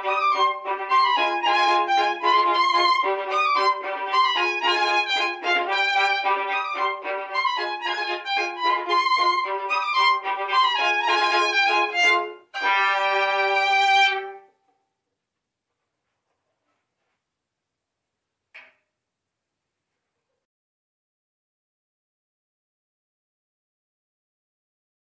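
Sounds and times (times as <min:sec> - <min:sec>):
violin duet: 0:00.0 - 0:14.6.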